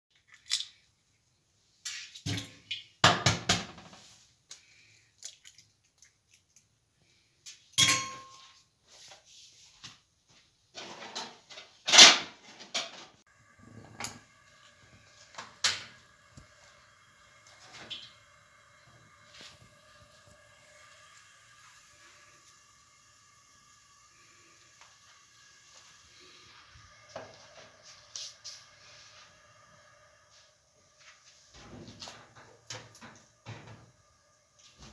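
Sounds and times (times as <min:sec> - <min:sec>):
eggs and bowl clinking on metal: 0:07.8 - 0:08.6.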